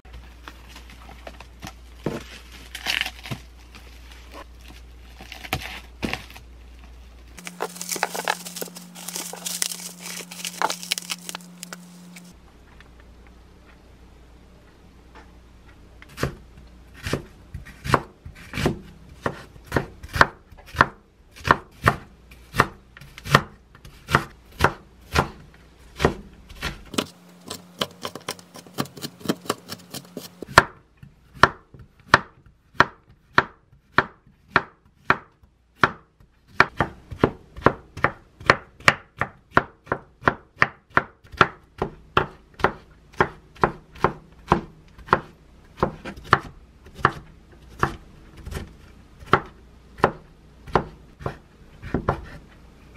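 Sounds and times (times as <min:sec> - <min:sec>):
knife chopping on wooden board: 0:17.0 - 0:30.8, 0:31.4 - 0:52.4.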